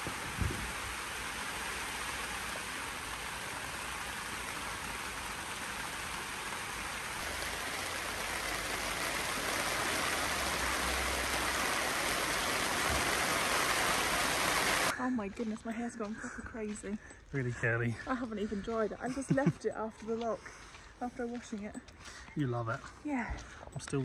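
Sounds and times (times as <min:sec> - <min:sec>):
low thump: 0:00.0 - 0:00.8
rain on tent fabric: 0:00.0 - 0:14.9.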